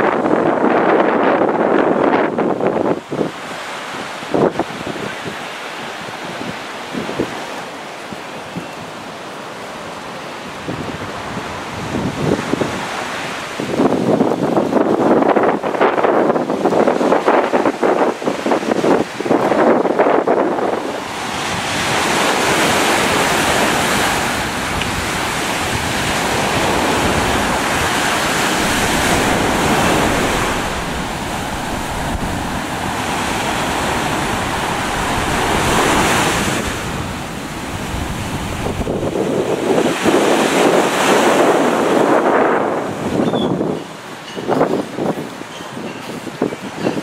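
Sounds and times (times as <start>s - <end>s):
wind buffeting microphone: 10.6s - 47.0s
ocean surf breaking: 16.7s - 43.2s.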